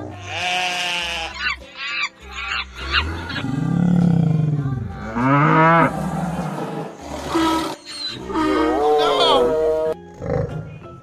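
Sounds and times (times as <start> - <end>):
cow mooing: 2.8 - 10.6.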